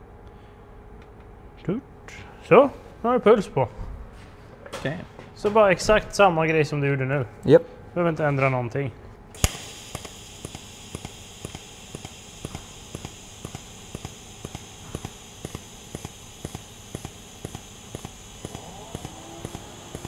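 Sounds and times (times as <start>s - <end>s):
sharp arc ticks: 9.4s - 20.0s
welding arc hissing: 9.4s - 20.0s.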